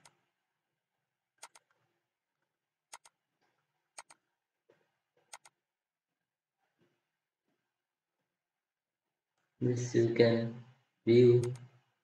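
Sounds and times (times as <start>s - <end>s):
computer mouse clicking: 1.4s - 1.8s, 2.9s - 3.2s, 3.9s - 4.3s, 5.2s - 5.6s, 11.4s - 11.8s.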